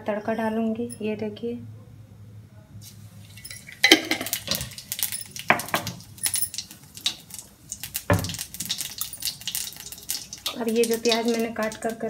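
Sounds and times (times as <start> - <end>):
seeds crackling in hot oil: 2.8 - 12.0.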